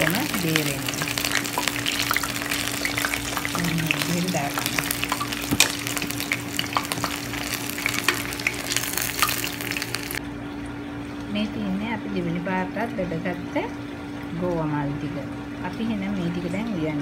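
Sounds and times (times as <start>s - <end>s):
deep-frying crackling sizzle: 0.0s - 10.2s.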